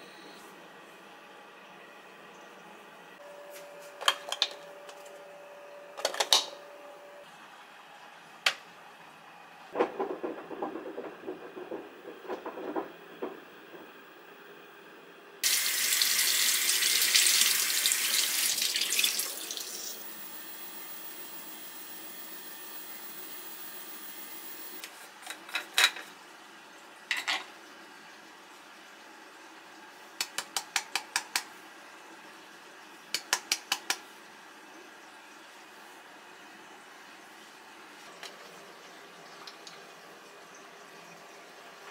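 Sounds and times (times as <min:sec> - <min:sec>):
sink tap running: 0:15.4 - 0:24.8.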